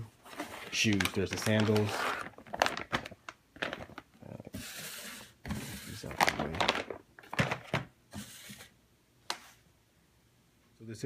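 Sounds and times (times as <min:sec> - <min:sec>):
plastic bag crinkling: 0:00.3 - 0:04.4, 0:05.9 - 0:07.7.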